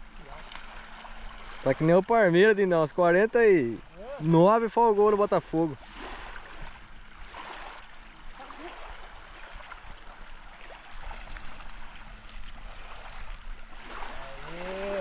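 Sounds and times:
river water rushing: 0:00.0 - 0:15.0
man speaking: 0:14.1 - 0:15.0.

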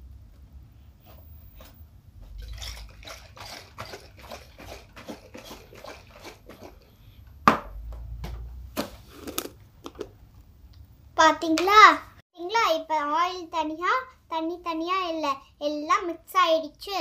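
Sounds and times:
liquid sloshing in a shaken jar: 0:02.2 - 0:07.1.

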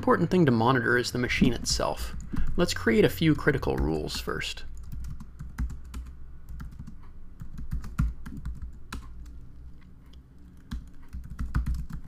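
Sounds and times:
typing on computer keyboard: 0:04.8 - 0:09.4, 0:10.6 - 0:12.0.

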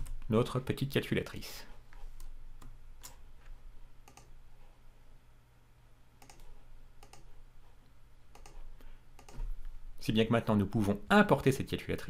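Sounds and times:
faint low hum: 0:00.0 - 0:12.0
mouse and keyboard clicks: 0:04.0 - 0:04.3, 0:06.2 - 0:07.3, 0:08.3 - 0:08.6, 0:09.2 - 0:09.5.

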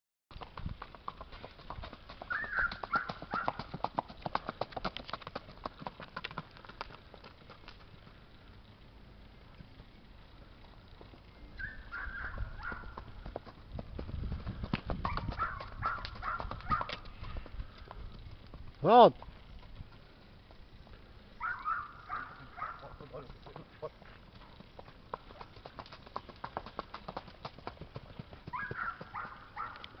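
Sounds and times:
horse hoofbeats on dirt: 0:00.3 - 0:08.1, 0:11.8 - 0:30.0.

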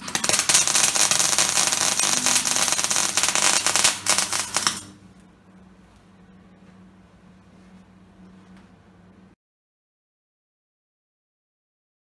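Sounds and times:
arc welder crackling: 0:00.0 - 0:06.1.

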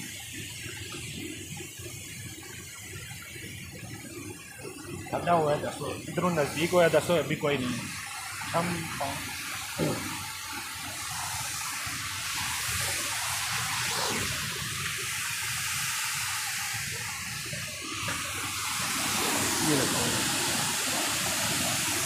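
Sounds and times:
waterfall rushing: 0:05.2 - 0:22.0.

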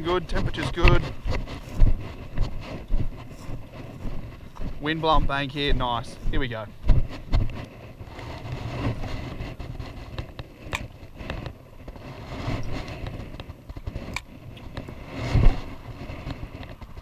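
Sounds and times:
wind buffeting microphone: 0:00.0 - 0:17.0
fishing reel clicks and rustling: 0:07.4 - 0:17.0.

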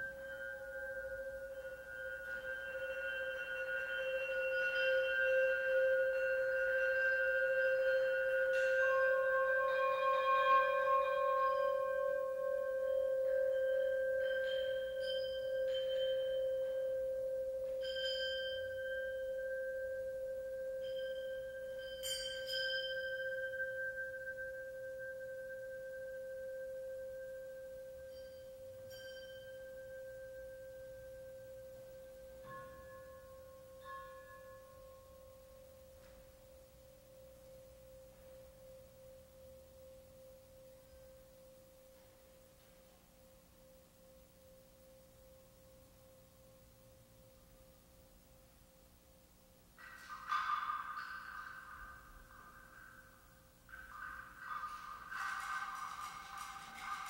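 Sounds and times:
metal rods ringing: 0:00.0 - 0:26.9, 0:49.8 - 0:57.0
higher chiming tones: 0:00.0 - 0:42.1.

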